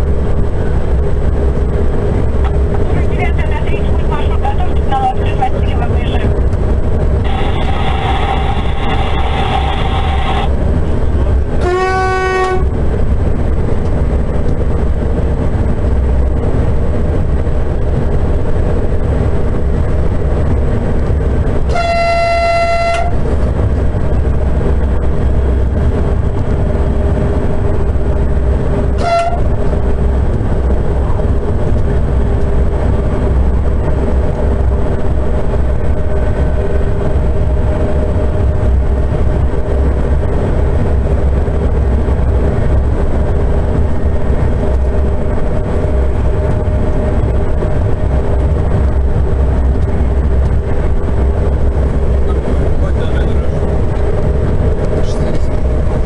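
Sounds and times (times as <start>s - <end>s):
train running rumble: 0.0s - 56.0s
train horn blasts: 11.6s - 12.8s, 21.6s - 23.2s, 29.0s - 29.6s.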